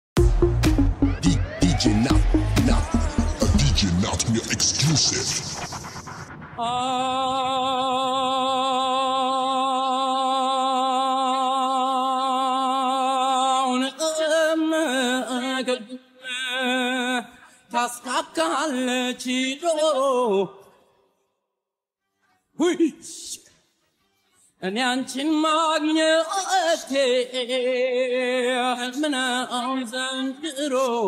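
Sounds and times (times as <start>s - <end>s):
man singing a cappella: 1.1s - 3.8s, 6.6s - 20.8s, 24.6s - 31.0s.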